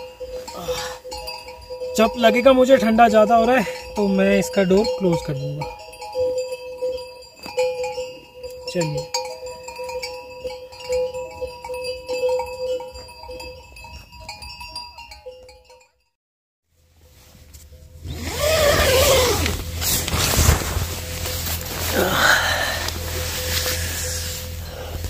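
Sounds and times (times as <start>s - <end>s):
livestock bells tinkling: 0.0s - 16.2s.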